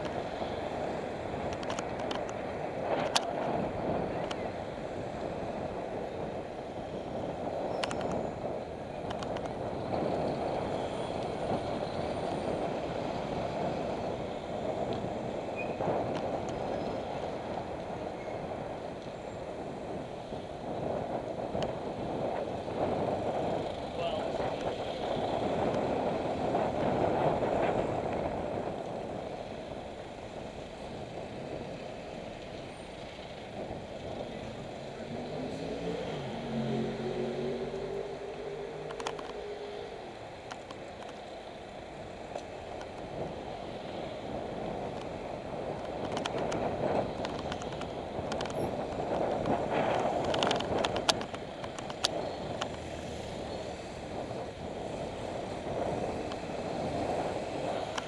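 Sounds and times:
wind and road noise: 0.0 - 58.0
vehicle engine revving: 34.7 - 40.0.

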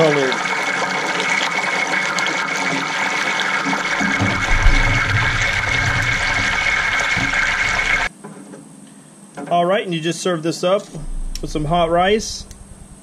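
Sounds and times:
fish sizzling in hot oil: 0.0 - 8.1.

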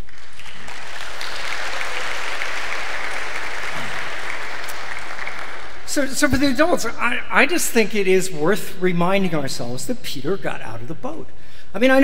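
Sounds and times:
congregation applauding: 0.0 - 6.3.

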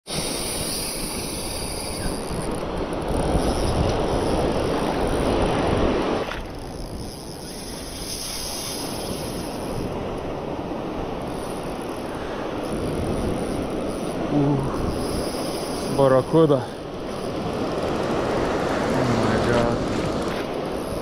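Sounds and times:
wind: 0.0 - 21.0
breaking surf: 15.8 - 21.0.

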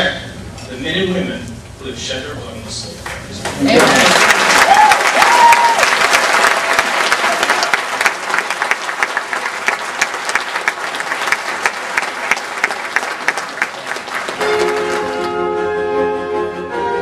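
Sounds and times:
audience applauding: 3.6 - 15.4.

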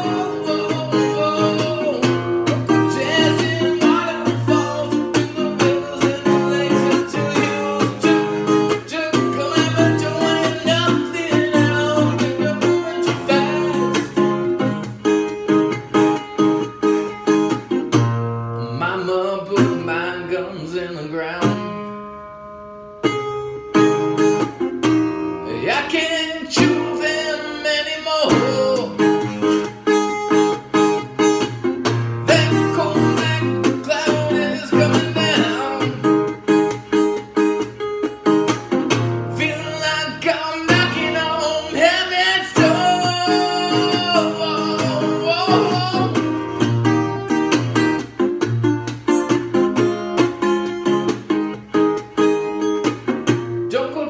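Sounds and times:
man singing: 0.0 - 14.7, 18.6 - 21.9, 25.4 - 29.6, 31.9 - 36.6, 39.1 - 46.8, 53.7 - 54.0
resonator guitar strumming: 0.0 - 54.0.

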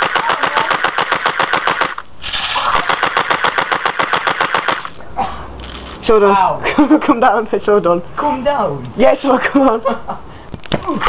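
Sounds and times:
airsoft gun firing full-auto: 0.0 - 2.0, 2.8 - 5.0.

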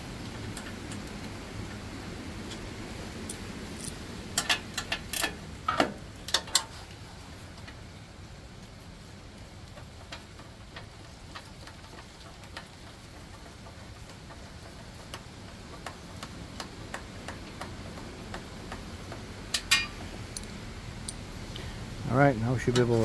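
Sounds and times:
wrench clicking on bolts: 3.2 - 5.4, 19.5 - 21.2.

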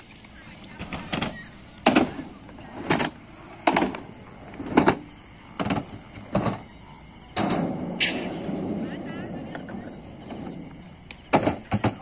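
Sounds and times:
skateboard clacks on concrete: 10.2 - 12.0.

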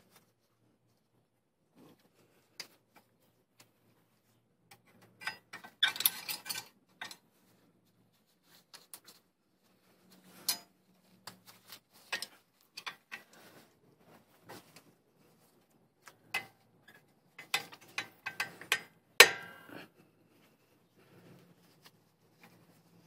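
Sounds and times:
metal clicks and taps: 17.4 - 19.4.

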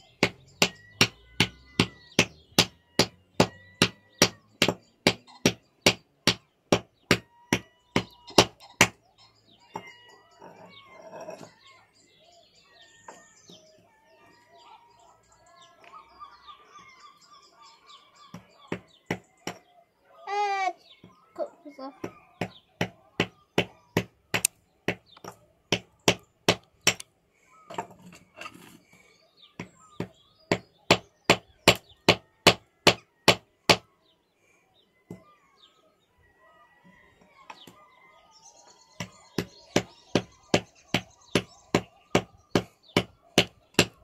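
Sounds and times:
hammer striking stone: 0.2 - 9.0.

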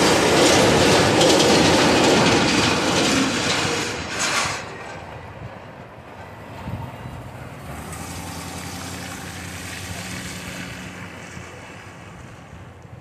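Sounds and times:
truck towing trailer passing: 0.0 - 13.0
pickup truck pulling away: 6.7 - 12.7.

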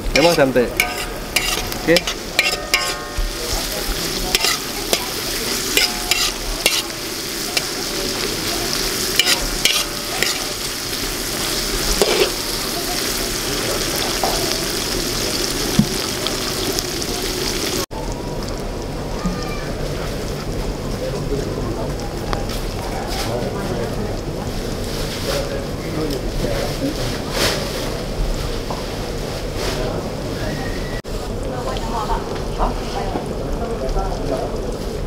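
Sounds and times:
metal spatula scraping a wok: 0.0 - 12.7
food sizzling in oil: 0.0 - 20.8.

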